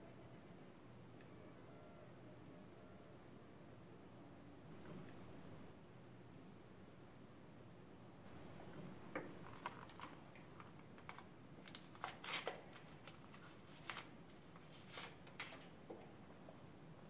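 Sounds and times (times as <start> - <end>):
paper packet crinkling: 9.4 - 15.7.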